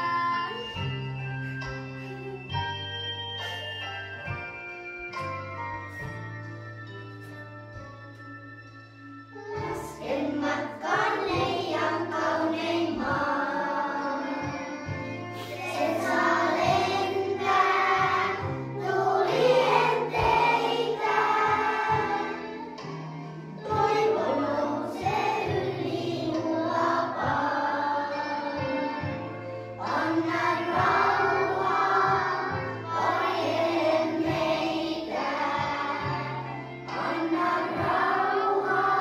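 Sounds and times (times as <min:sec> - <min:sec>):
instrumental accompaniment with bass: 0:00.0 - 0:39.0
children and women singing: 0:09.4 - 0:22.8, 0:23.6 - 0:39.0.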